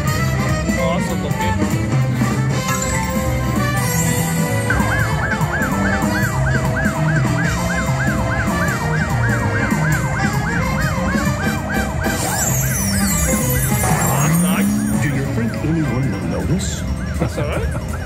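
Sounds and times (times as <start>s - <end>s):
low musical backing: 0.0s - 18.0s
siren-like electronic whoop: 3.8s - 15.2s.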